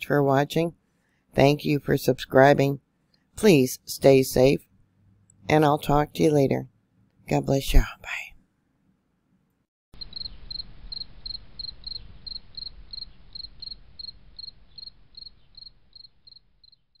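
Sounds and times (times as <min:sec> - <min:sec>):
cricket chirping: 0:10.0 - 0:17.0
low rumble: 0:10.1 - 0:15.9.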